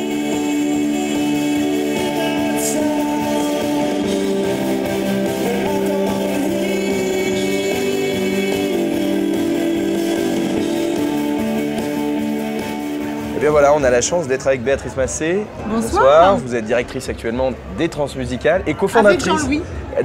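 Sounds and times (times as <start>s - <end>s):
person singing: 0.0s - 12.1s
electric guitar chords: 0.0s - 13.5s
rock band playing: 0.0s - 14.0s.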